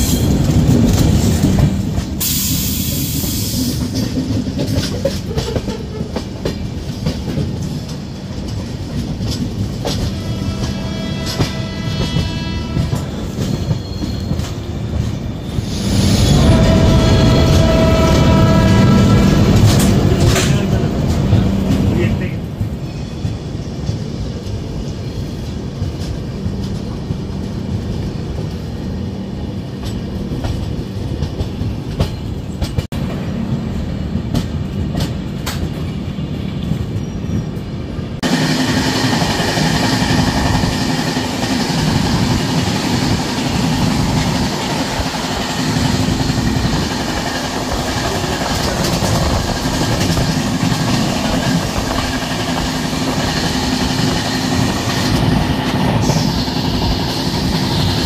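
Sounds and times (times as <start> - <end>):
train running on rails: 0.0 - 58.0
wheels clicking over rail joints: 3.6 - 12.2, 38.8 - 58.0.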